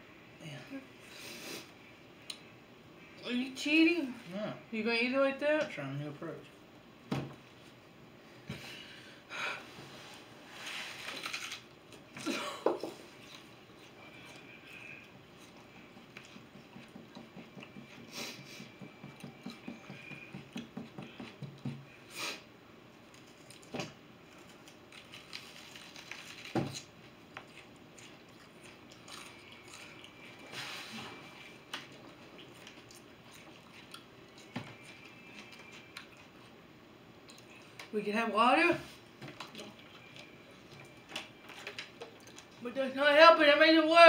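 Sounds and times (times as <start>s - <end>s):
onion chewing and crunching: 10.9s - 12.2s, 13.0s - 18.1s, 23.0s - 30.5s, 31.2s - 36.6s.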